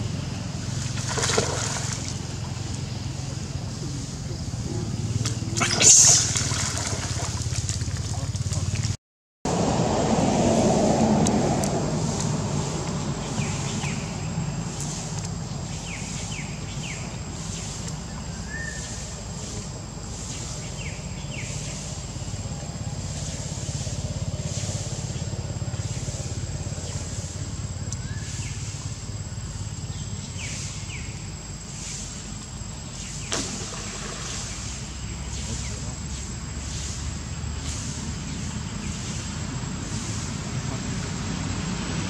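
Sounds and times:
soft hissing pulses: 0.0s - 8.3s, 10.3s - 42.0s
high whine: 4.2s - 7.4s.

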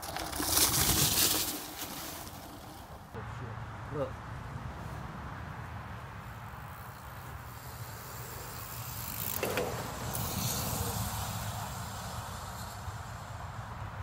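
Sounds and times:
bike tyres crunching over dirt: 0.0s - 3.2s
rushing hiss: 7.5s - 13.6s.

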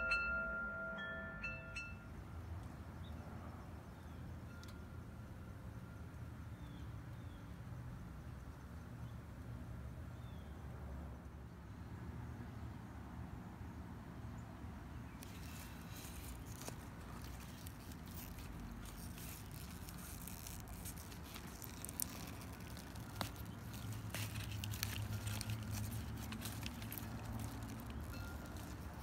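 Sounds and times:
leaves rustling and crackling: 15.1s - 29.0s.

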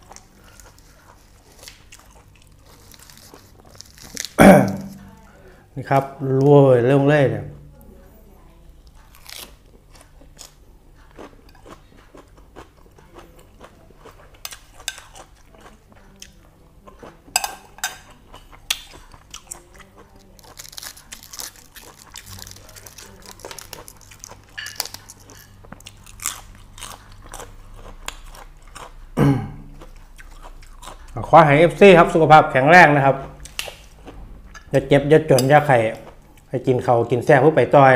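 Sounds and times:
person chewing crunchy food: 0.0s - 5.3s, 8.8s - 17.4s, 18.0s - 32.1s
faint low hum: 0.0s - 37.9s.

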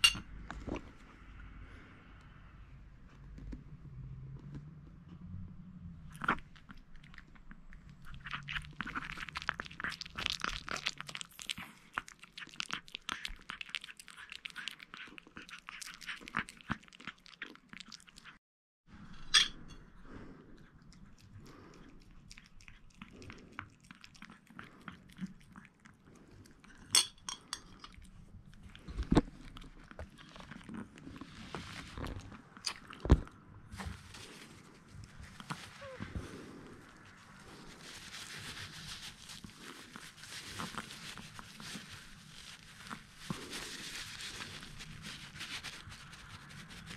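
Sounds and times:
fork clinking on plate: 0.0s - 0.2s.

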